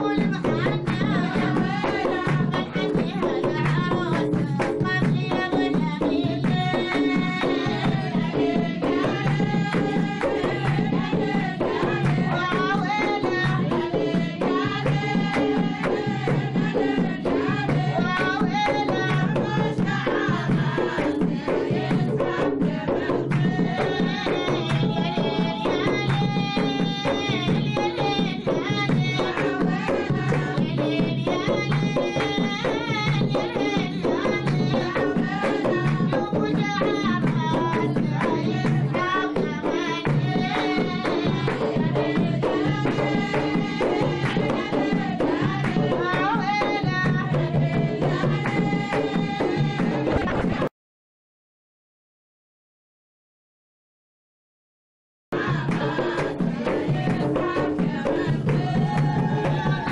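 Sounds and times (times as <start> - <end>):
hand drums: 0.0 - 50.7, 55.4 - 59.9
women singing together: 0.0 - 50.7, 55.4 - 59.9
people clapping: 3.6 - 4.7, 43.8 - 44.4.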